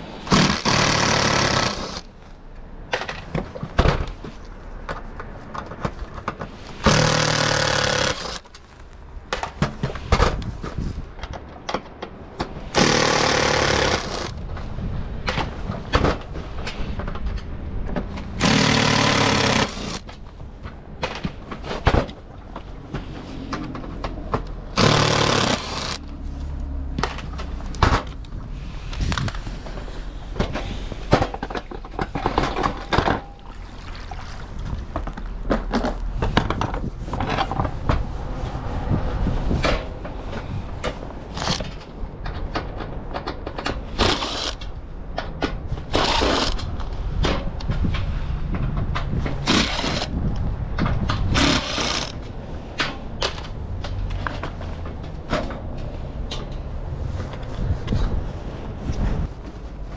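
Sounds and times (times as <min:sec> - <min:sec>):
electric screwdriver whirring: 0:00.3 - 0:02.1, 0:06.8 - 0:08.5, 0:12.8 - 0:14.4, 0:18.4 - 0:20.0, 0:24.8 - 0:26.0, 0:41.3 - 0:41.6, 0:44.0 - 0:44.6, 0:51.4 - 0:52.2.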